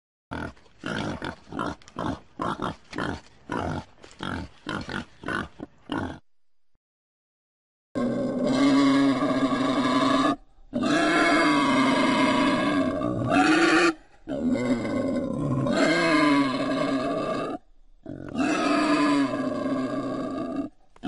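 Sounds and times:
wild boar calls: 0:08.0 - 0:20.8.

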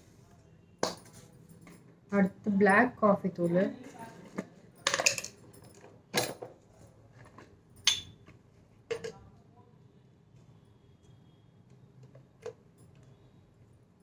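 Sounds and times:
glass jars knocking and clinking: 0:03.4 - 0:06.6, 0:07.8 - 0:08.3.

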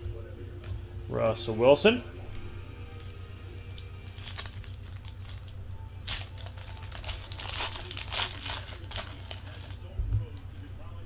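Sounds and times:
foil wrapper crinkling and tearing: 0:03.0 - 0:10.7.

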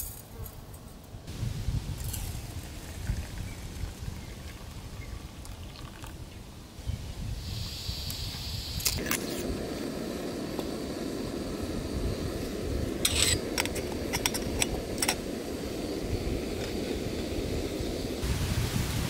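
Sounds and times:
gas stove burner rushing: 0:07.4 - 0:18.3
metal lid clinking on teapot: 0:13.0 - 0:15.3
stove ignition click: 0:13.0 - 0:15.4.

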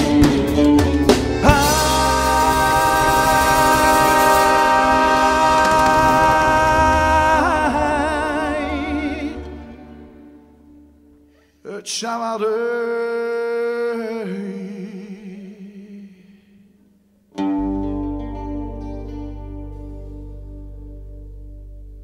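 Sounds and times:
man singing alone: 0:01.4 - 0:10.0, 0:11.6 - 0:16.6.

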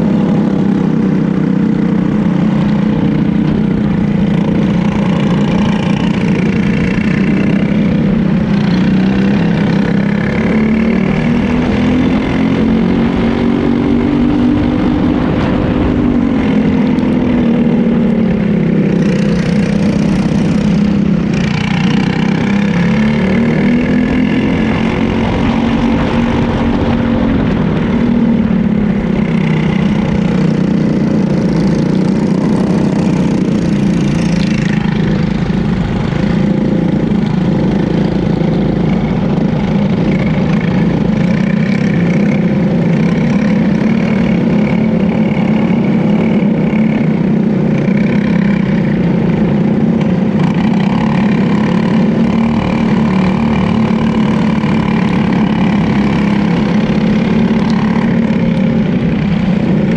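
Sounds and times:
kart engine running: 0:00.0 - 0:59.9
other karts: 0:00.0 - 0:59.9.

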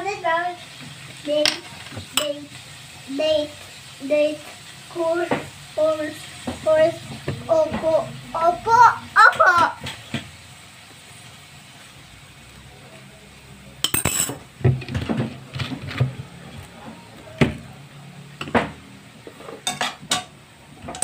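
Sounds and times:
utensils and glass clinking: 0:13.8 - 0:16.1, 0:19.4 - 0:21.0.

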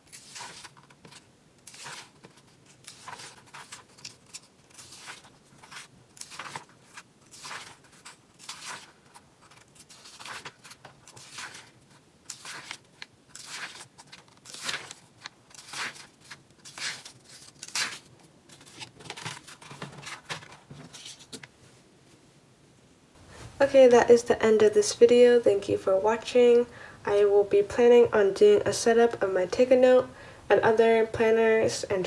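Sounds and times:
paper pages turning: 0:00.0 - 0:21.5.

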